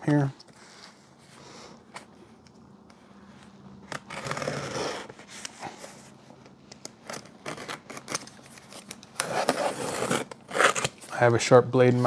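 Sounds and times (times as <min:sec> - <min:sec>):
utility knife slicing packing tape: 0:09.2 - 0:11.0.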